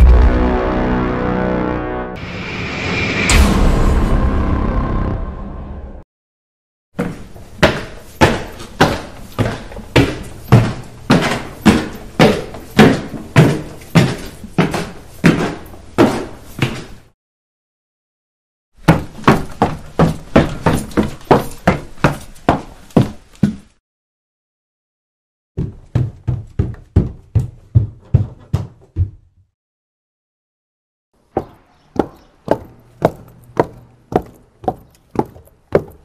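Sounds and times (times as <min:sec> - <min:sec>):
footsteps on stairs: 0:07.0 - 0:17.1, 0:18.8 - 0:23.8, 0:25.6 - 0:29.5, 0:31.4 - 0:36.0.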